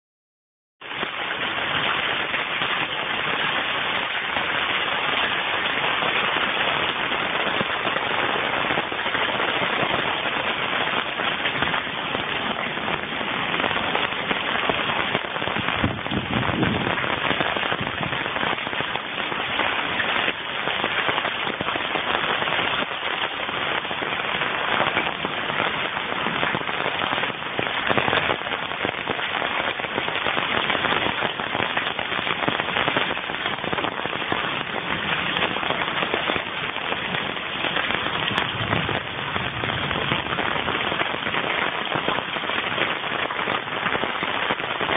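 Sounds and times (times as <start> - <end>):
hailstones crackling: 0.8 - 44.9
heavy rain hissing: 0.8 - 44.9.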